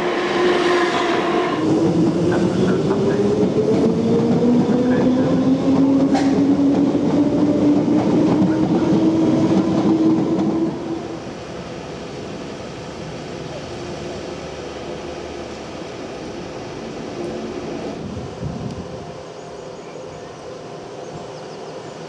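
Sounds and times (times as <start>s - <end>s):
wheels rumbling on rails: 1.6s - 19.2s.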